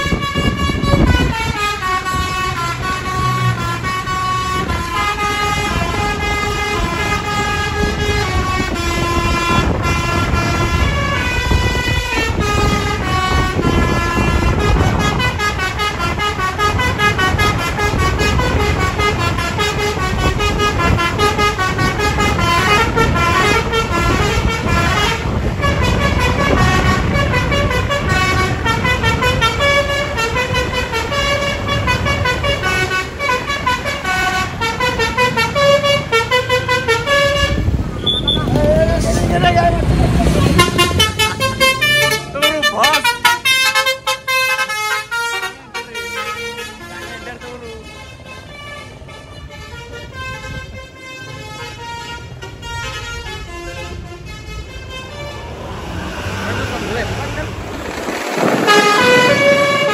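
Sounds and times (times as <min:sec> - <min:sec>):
musical bus horns: 0:00.0 - 0:59.9.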